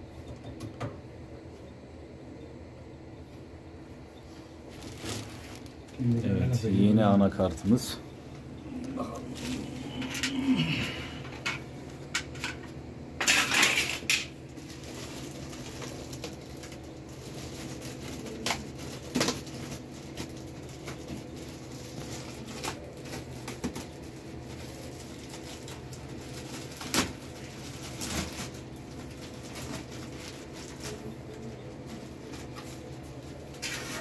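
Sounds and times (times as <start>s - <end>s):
low machine hum: 0.0s - 34.0s
plastic bag crinkling: 4.7s - 6.1s, 13.2s - 31.2s.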